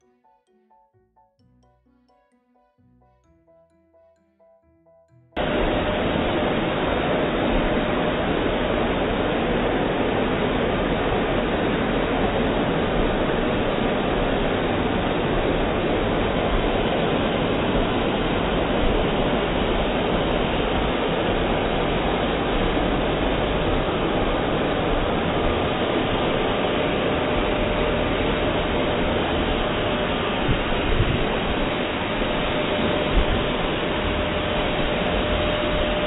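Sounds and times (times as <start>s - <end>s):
hair dryer blowing: 5.4s - 36.0s.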